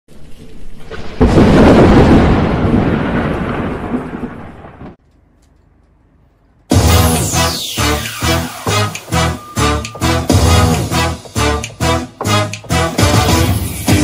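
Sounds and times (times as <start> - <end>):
thunder rumbling: 0.1 - 5.0
loud thunderclap: 0.7 - 5.0.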